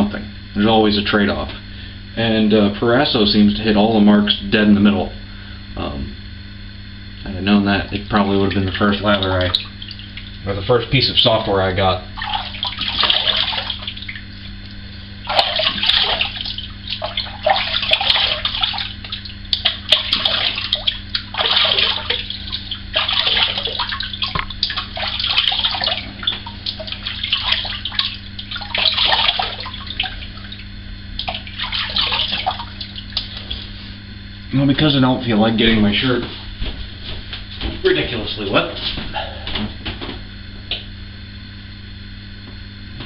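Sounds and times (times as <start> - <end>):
steady low hum: 0.0 - 43.0
water splashing at a sink: 7.6 - 33.8.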